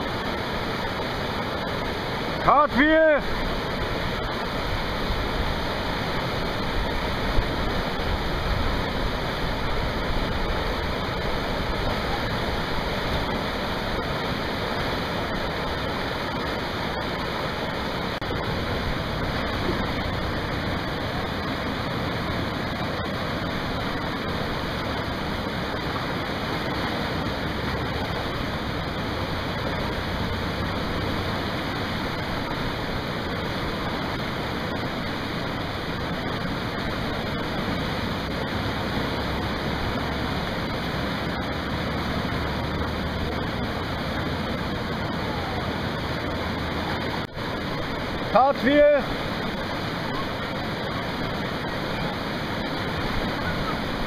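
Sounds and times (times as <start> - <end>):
whitewater rushing: 0.0 - 54.0.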